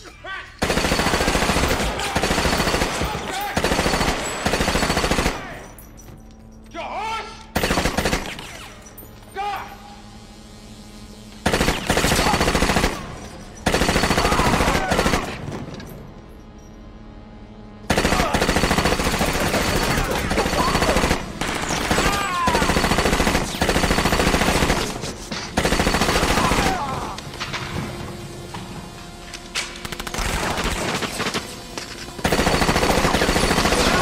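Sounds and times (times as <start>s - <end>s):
automatic gunfire: 0.6s - 5.6s, 7.6s - 8.6s, 11.4s - 15.4s, 17.9s - 25.0s, 25.6s - 26.8s, 32.2s - 34.0s.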